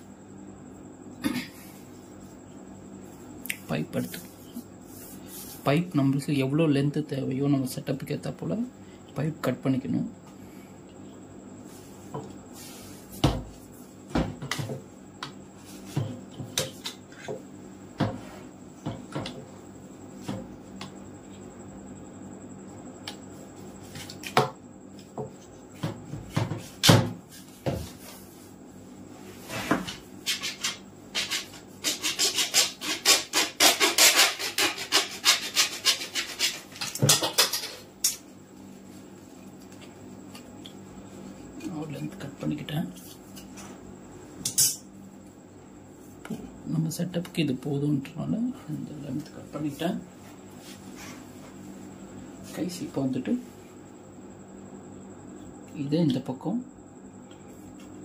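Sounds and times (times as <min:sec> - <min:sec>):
saw rasping through plastic pipe: 0:30.3 - 0:36.8.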